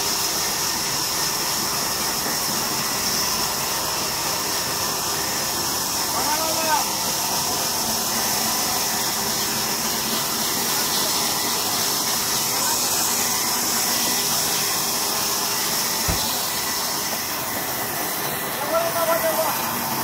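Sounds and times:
band saw cutting through log: 0.0s - 20.0s
low thump: 16.0s - 16.4s.

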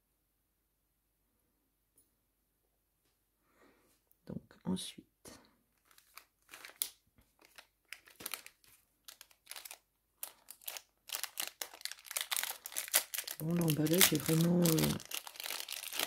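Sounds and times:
packaging crinkling and rustling: 5.7s - 16.0s.

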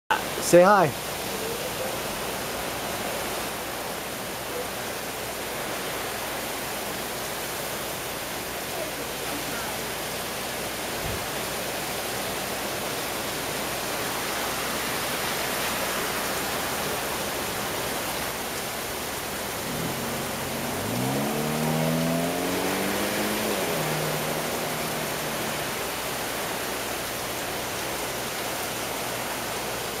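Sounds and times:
heavy wind-driven rain: 0.1s - 30.0s
passing car hum: 19.0s - 27.2s.

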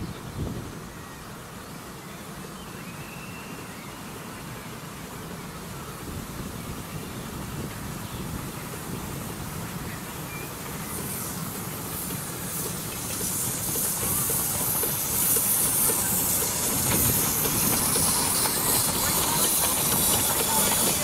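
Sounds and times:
steam locomotive hissing: 0.7s - 21.0s
wheels clicking on track: 7.6s - 21.0s.

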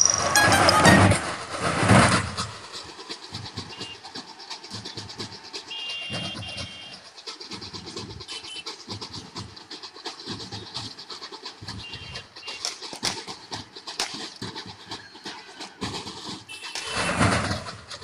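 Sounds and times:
crowd cheering: 0.0s - 1.3s
crowd din: 0.0s - 1.3s
short high horn tone: 0.1s - 1.2s.

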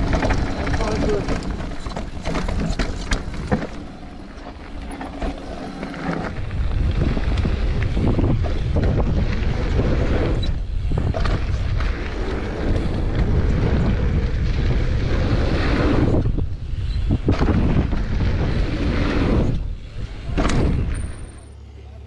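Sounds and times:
bike rattling and knocking: 0.0s - 18.6s
tyres rushing on dirt trail: 0.0s - 22.0s
wind buffeting microphone: 6.2s - 21.2s.

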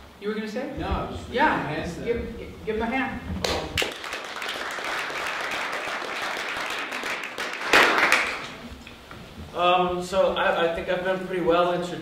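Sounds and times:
audience applauding: 3.4s - 8.7s.

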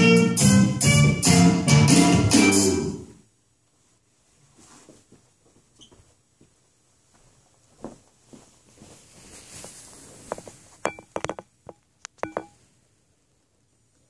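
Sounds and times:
soft footsteps on floor: 3.7s - 10.8s
sharp clicks and knocks ringing: 10.9s - 12.6s.

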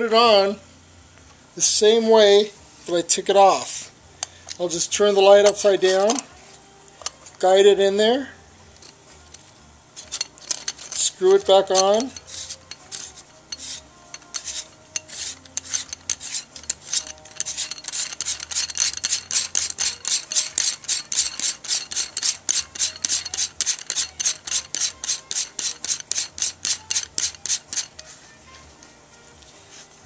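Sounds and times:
metal threads rasping: 4.2s - 6.3s, 8.7s - 28.9s.

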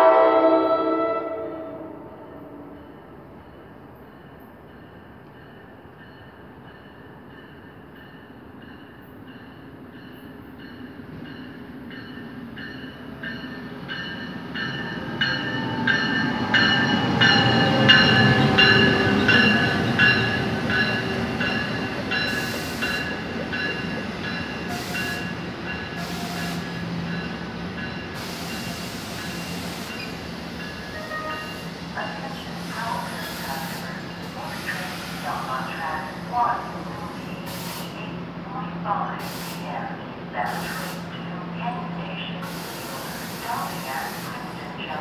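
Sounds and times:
train rumbling past: 0.0s - 45.0s
short bursts of hiss: 37.4s - 38.1s, 39.2s - 39.7s, 40.5s - 41.1s, 42.4s - 44.6s.

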